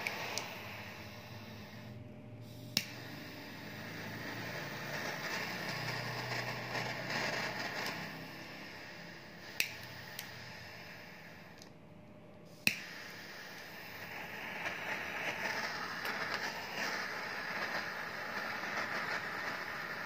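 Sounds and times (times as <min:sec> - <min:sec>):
lighter ignition click: 0:00.0 - 0:01.6, 0:02.7 - 0:08.1, 0:08.9 - 0:10.4, 0:12.5 - 0:19.8
torch lighter flame hissing: 0:00.0 - 0:11.8, 0:12.4 - 0:20.0.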